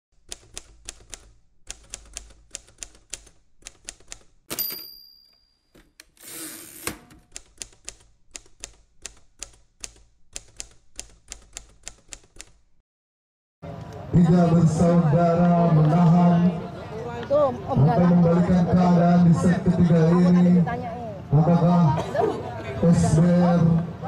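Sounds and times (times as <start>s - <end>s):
typewriter keys clacking: 0.3s - 5.0s, 5.8s - 12.6s
typewriter carriage return: 3.9s - 5.0s, 5.7s - 8.0s
typewriter bell ding: 4.5s - 5.9s.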